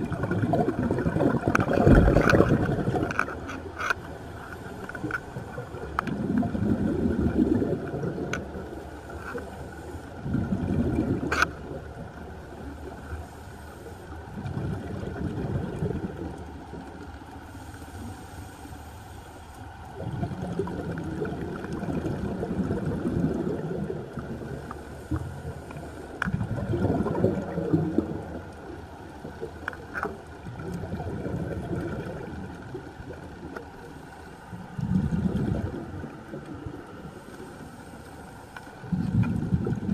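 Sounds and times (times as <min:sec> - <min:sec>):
gurgling exhaled bubbles: 0:00.0 - 0:03.7, 0:04.6 - 0:09.1, 0:10.2 - 0:13.0, 0:14.2 - 0:17.1, 0:19.9 - 0:37.9, 0:38.7 - 0:39.9
regulator breathing underwater: 0:17.4 - 0:19.6, 0:37.0 - 0:39.1.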